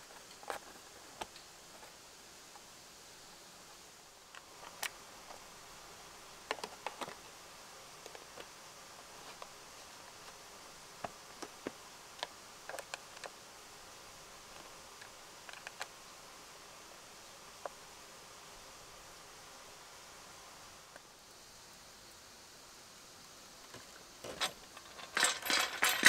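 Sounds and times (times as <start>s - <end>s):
faint steady hiss: 0.0s - 26.0s.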